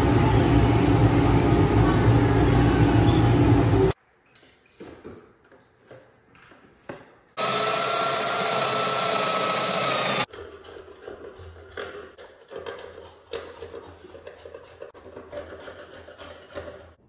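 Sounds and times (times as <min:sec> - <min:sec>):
jointer-planer running loudly: 0:07.4 - 0:10.3
power joiner whining: 0:07.4 - 0:10.3.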